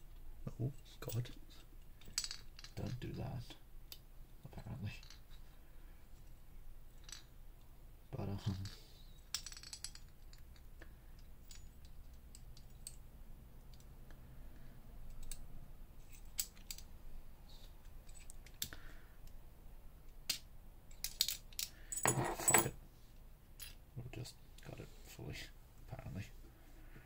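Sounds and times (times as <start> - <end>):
metal lock parts clicking: 15.1 - 15.4, 16.0 - 16.9.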